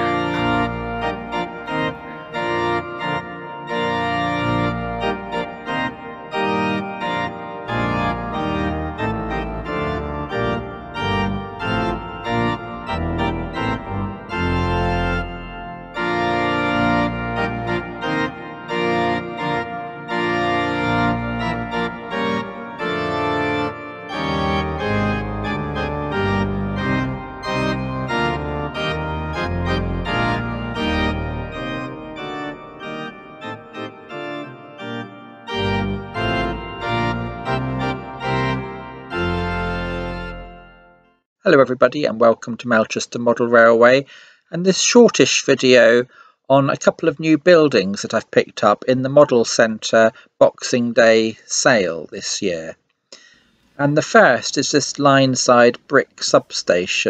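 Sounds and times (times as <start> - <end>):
organ music: 0.0 - 41.3.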